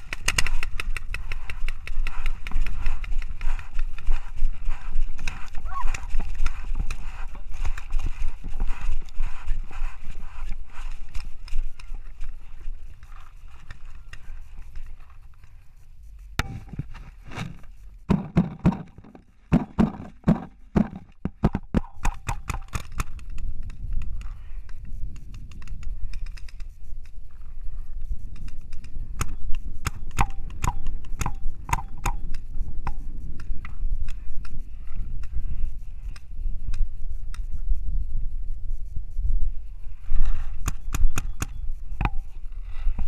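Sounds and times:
paintball markers firing: 0:00.0 - 0:12.4, 0:18.1 - 0:27.2, 0:28.3 - 0:34.6, 0:40.5 - 0:42.4
wind rumble on microphone: 0:00.0 - 0:18.9, 0:19.8 - 0:43.0.

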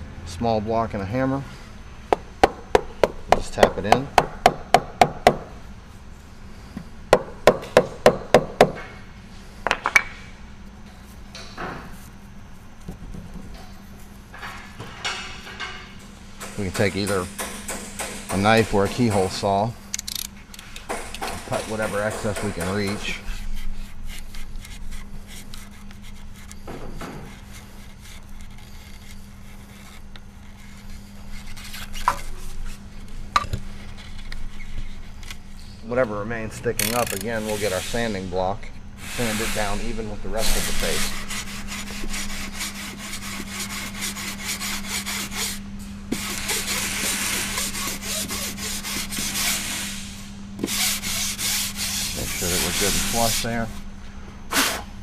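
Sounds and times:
knife cutting and scraping: 0:21.5 - 0:35.3, 0:40.4 - 0:49.8.

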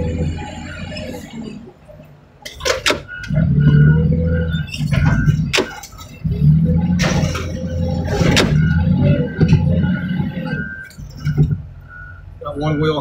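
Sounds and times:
heavy equipment engine running: 0:00.0 - 0:13.0
metal clanks and bangs: 0:04.6 - 0:09.9.

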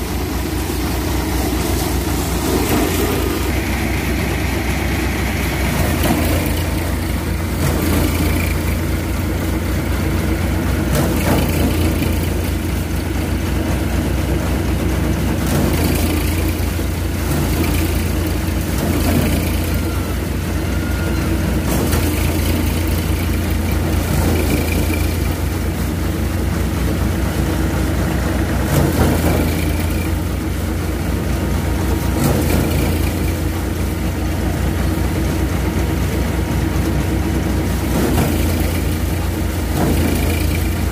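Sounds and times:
rushing noise of straw: 0:00.0 - 0:20.7
low engine drone: 0:00.0 - 0:40.9
threshing drum whirring: 0:00.0 - 0:40.9.

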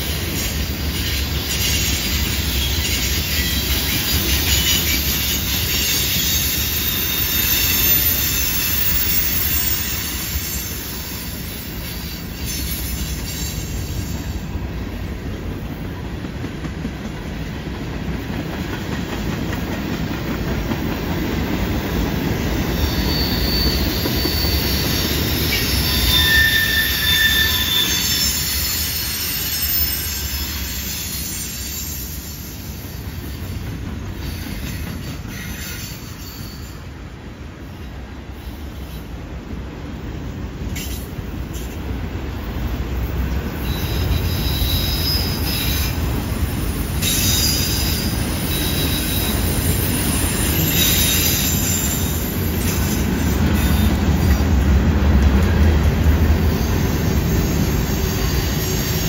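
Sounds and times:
high-pitched wheel squeal: 0:01.0 - 0:14.3, 0:22.6 - 0:33.1, 0:34.3 - 0:36.9, 0:43.6 - 0:54.4, 0:56.4 - 0:59.0.

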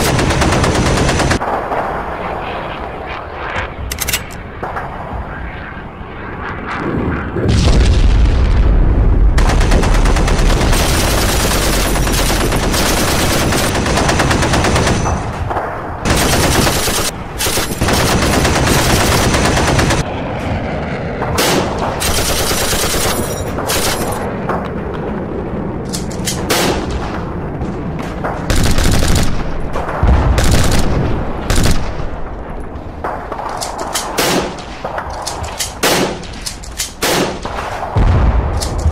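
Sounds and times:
machine-gun and rifle fire: 0:00.0 - 0:01.8, 0:09.4 - 0:15.4, 0:16.0 - 0:20.1, 0:21.4 - 0:24.2, 0:28.5 - 0:32.1
deep explosion blasts: 0:06.8 - 0:10.9, 0:29.9 - 0:31.5, 0:37.9 - 0:38.9.

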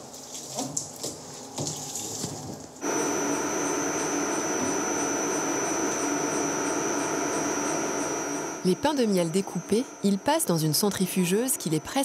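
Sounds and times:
centrifuge press whining: 0:02.8 - 0:12.0.

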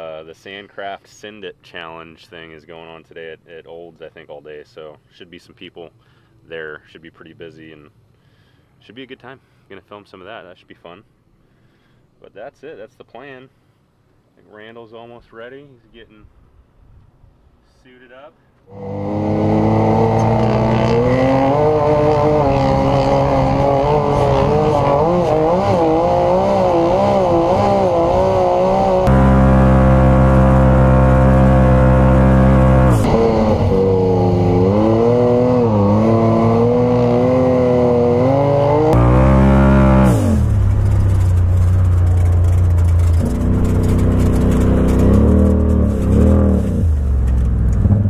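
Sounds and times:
off-road vehicle engine revving: 0:18.7 - 0:48.0.

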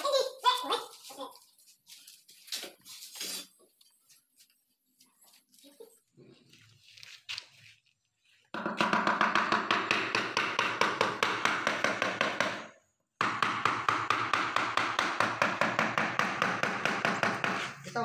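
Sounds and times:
hammer tapping floor tile: 0:08.5 - 0:17.9.

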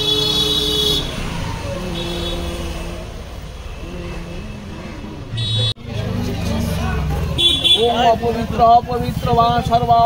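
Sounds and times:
vehicle horns: 0:00.0 - 0:03.1, 0:05.3 - 0:05.8, 0:07.4 - 0:08.2
traffic rumble: 0:00.0 - 0:10.0.

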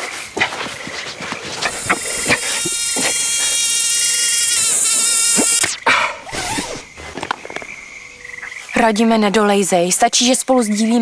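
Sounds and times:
mosquito whining: 0:01.0 - 0:06.9.

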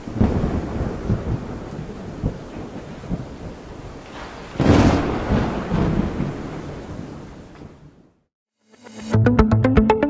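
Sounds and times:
loud thunderclap: 0:00.0 - 0:07.8
rolling thunder: 0:00.0 - 0:07.9.

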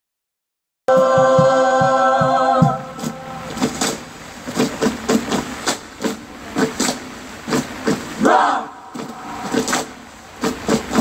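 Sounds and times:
choir singing a chord: 0:00.9 - 0:03.7
low rhythmic pulses: 0:00.9 - 0:11.0
steady hiss: 0:00.9 - 0:11.0.

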